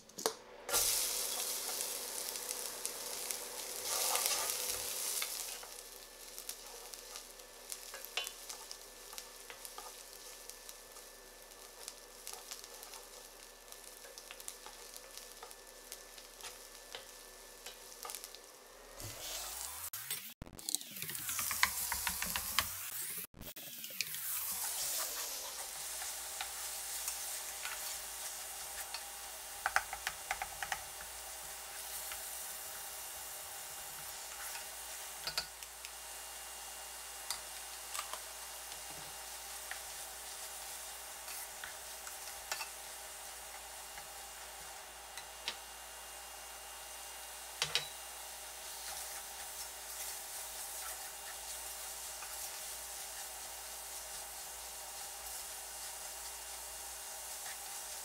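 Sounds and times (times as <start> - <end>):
meat sizzling in a frying pan: 0.7 - 58.0
wooden spoon scraping a pan: 3.8 - 5.7, 48.6 - 56.4.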